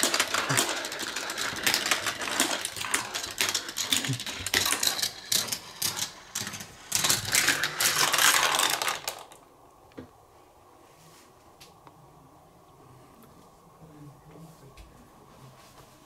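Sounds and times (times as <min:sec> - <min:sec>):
marbles rattling through plastic run: 0:00.0 - 0:09.4.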